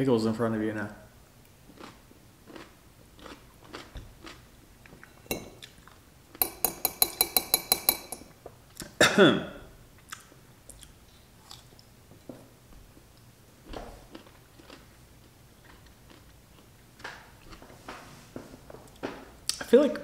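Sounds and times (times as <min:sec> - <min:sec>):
soft chewing: 0:01.4 - 0:06.0, 0:10.0 - 0:17.8
fork tapping glass jar: 0:05.3 - 0:05.5, 0:06.4 - 0:08.3.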